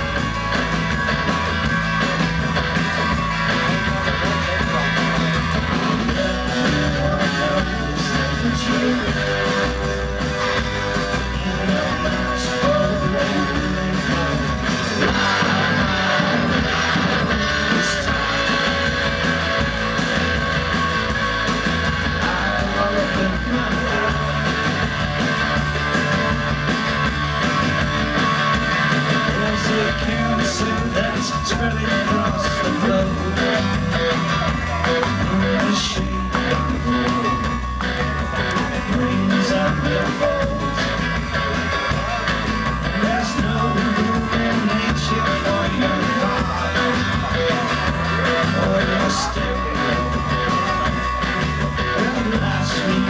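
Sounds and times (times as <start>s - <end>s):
drum kit with cymbals: 0.0s - 53.0s
electric guitar: 0.0s - 53.0s
person singing lead vocal: 4.0s - 19.4s, 22.0s - 25.2s, 29.0s - 53.0s.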